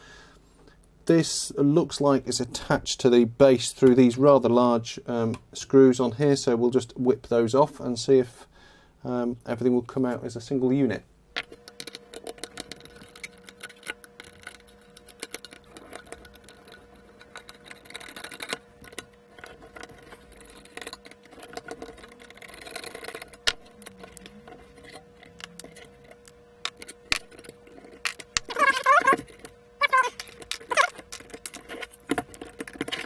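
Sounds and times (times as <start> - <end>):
faint steady hum: 0.0 - 33.0
metallic clicks and scrapes of screws: 11.5 - 33.0.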